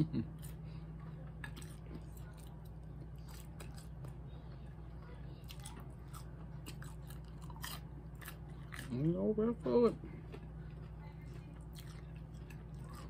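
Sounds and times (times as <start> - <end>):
chewing french fries: 0.0 - 13.0
steady low hum: 0.0 - 13.0.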